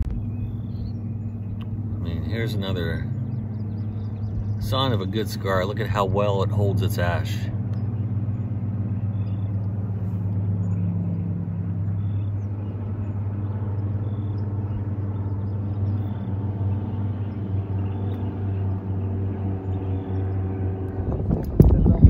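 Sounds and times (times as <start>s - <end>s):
engine humming: 0.0s - 22.0s.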